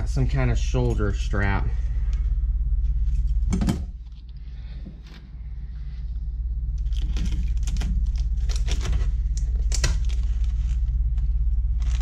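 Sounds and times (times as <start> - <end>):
steady low hum: 0.0 - 12.0
plastic packaging crinkling: 6.8 - 12.0.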